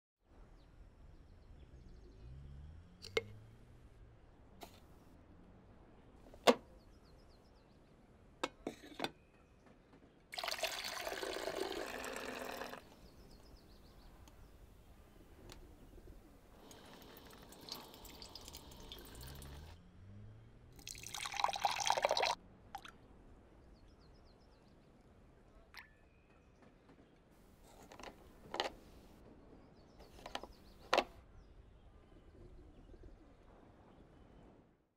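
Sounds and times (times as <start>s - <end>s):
liquid pouring: 10.4s - 13.0s, 16.6s - 19.8s, 20.8s - 22.9s.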